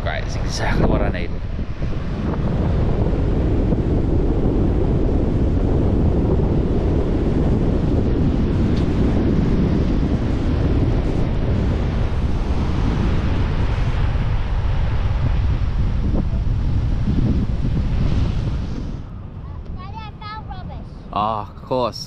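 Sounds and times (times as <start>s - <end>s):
wind buffeting microphone: 0.0s - 22.0s
surf breaking on beach: 1.6s - 19.0s.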